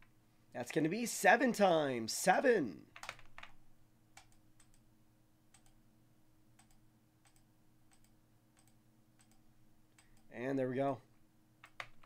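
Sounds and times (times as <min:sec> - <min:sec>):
low steady hum: 0:00.0 - 0:12.0
faint computer mouse clicks: 0:06.6 - 0:10.3.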